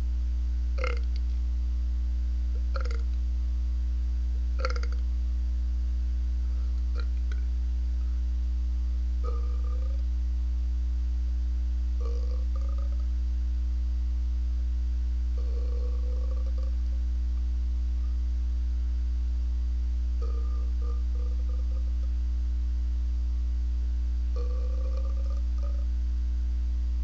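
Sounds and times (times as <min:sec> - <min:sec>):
low electrical hum: 0:00.0 - 0:27.0
man belching: 0:00.8 - 0:01.1, 0:02.6 - 0:03.0, 0:04.6 - 0:05.0, 0:06.9 - 0:07.3, 0:09.2 - 0:10.0, 0:12.0 - 0:13.0, 0:20.2 - 0:21.8, 0:24.4 - 0:25.8.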